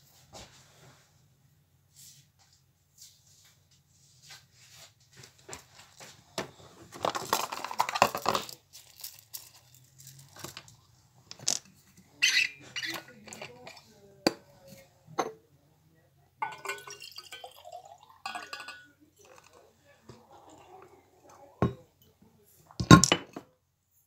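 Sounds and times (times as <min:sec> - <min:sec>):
loud crinkling rustle: 0:07.0 - 0:10.6.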